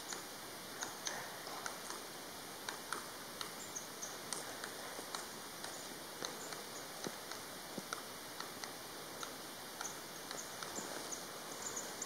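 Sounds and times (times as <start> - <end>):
woodpecker tapping on bark: 0.8 - 10.8.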